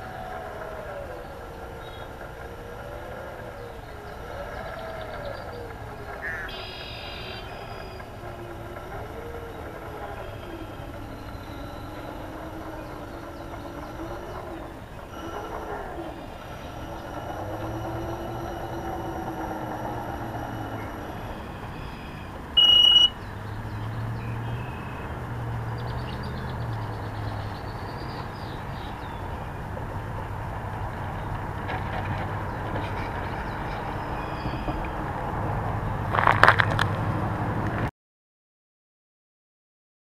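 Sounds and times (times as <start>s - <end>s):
model plane motor running: 0.0s - 22.8s
short high beep: 22.6s - 23.2s.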